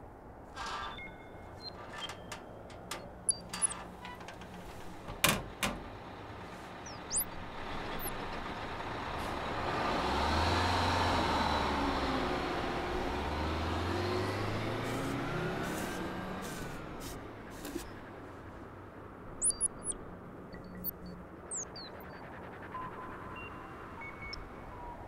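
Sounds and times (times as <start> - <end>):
bus engine idling: 1.5 - 20.4.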